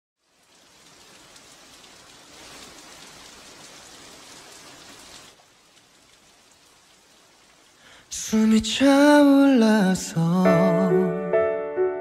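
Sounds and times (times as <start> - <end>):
rain falling on pavement: 0.2 - 10.5.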